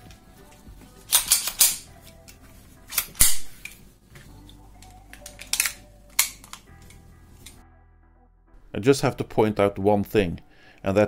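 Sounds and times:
pistol metallic clicks: 0:01.1 - 0:01.9, 0:02.9 - 0:03.8, 0:04.8 - 0:07.6.

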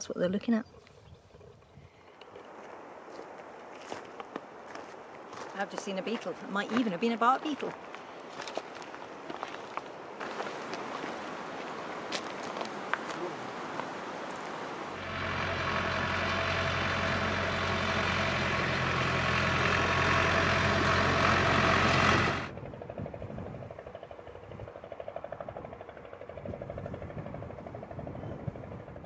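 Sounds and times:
tractor engine running: 0:14.9 - 0:29.0.

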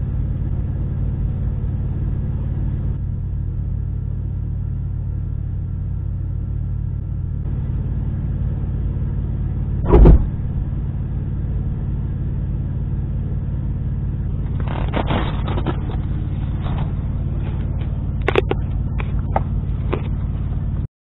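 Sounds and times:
diesel engine idling: 0:00.0 - 0:20.9
loud thump: 0:09.8 - 0:10.6.

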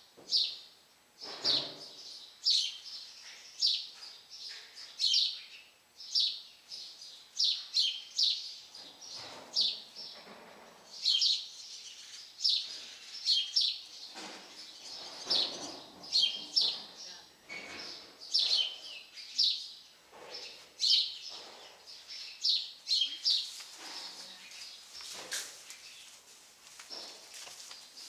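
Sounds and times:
small birds chirping: 0:00.2 - 0:28.0
faint rustling: 0:23.2 - 0:28.0.

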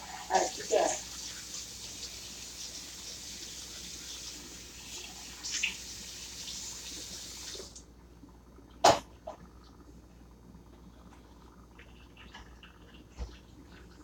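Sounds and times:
tap water running into sink: 0:00.0 - 0:07.8.

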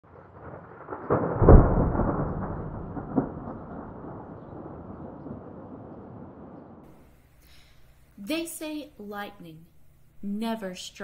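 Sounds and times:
thunder crack and rumble: 0:00.0 - 0:07.0.

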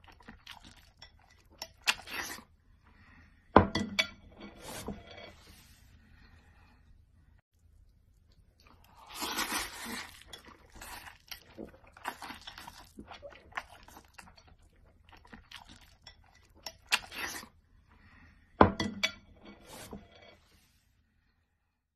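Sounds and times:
noodles slurped and chewed: 0:00.0 - 0:02.6, 0:08.1 - 0:17.6.

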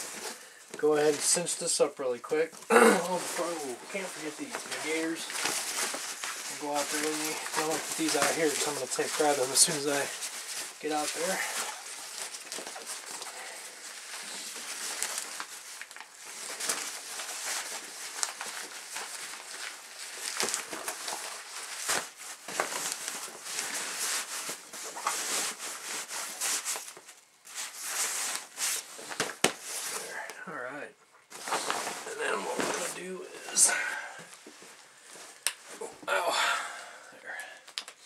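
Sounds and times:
nylon fabric rustling: 0:02.6 - 0:30.0, 0:31.3 - 0:35.8.

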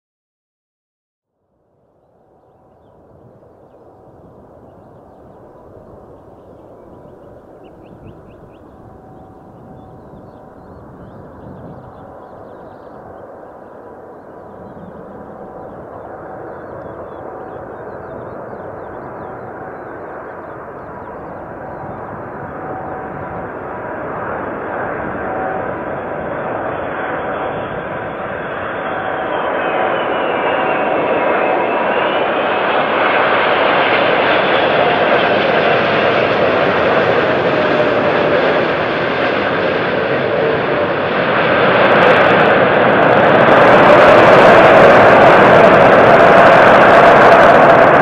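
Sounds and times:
jet airliner engines rushing: 0:02.4 - 0:48.0.

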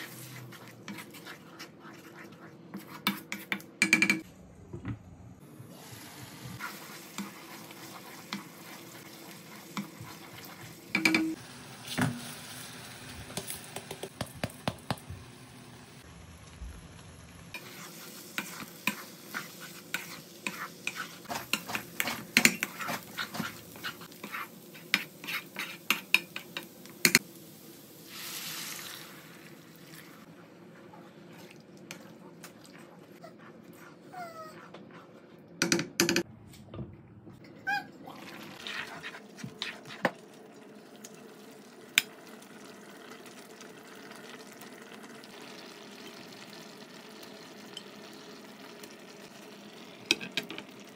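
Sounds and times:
wooden spatula stirring liquid: 0:00.0 - 0:03.7, 0:06.6 - 0:10.8, 0:38.6 - 0:40.2
taps and scrapes in frying pan: 0:13.3 - 0:15.0, 0:18.4 - 0:27.2.

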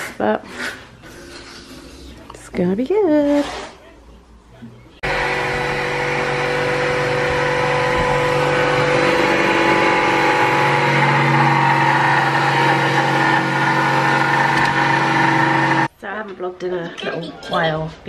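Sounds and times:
power tool motor running: 0:05.0 - 0:15.9.

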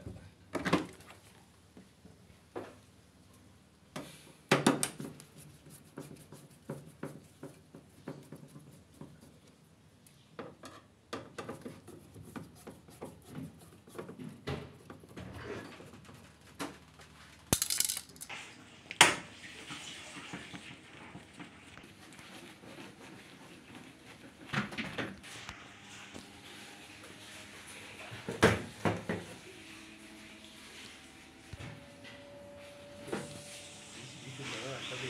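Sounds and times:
metal and plastic objects clinking: 0:17.5 - 0:18.3.

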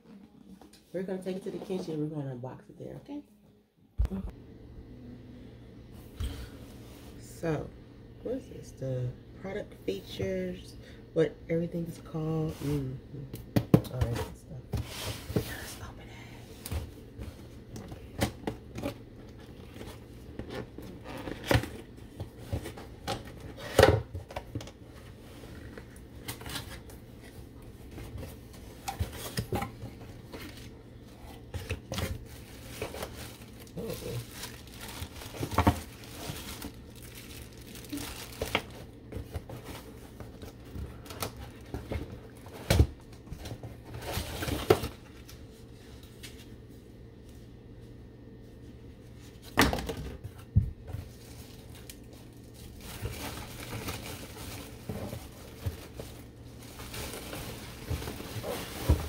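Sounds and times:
cardboard tearing and crinkling: 0:31.7 - 0:42.9.

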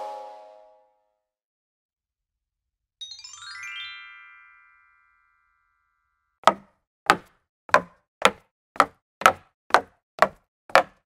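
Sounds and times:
bright chime notes: 0:03.0 - 0:06.3
sharp knocks: 0:06.4 - 0:11.0.

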